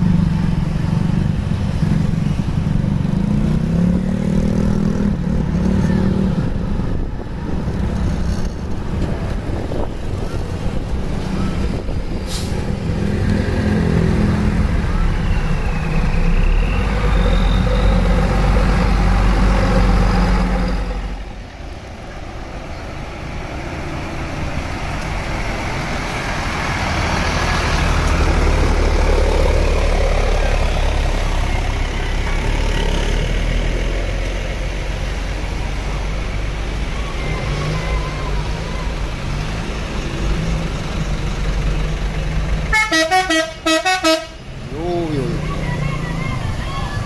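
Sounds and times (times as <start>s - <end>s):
motorcycle driving by: 0.0s - 6.4s
bus diesel engine rumbling: 0.0s - 47.0s
small truck driving by: 0.0s - 47.0s.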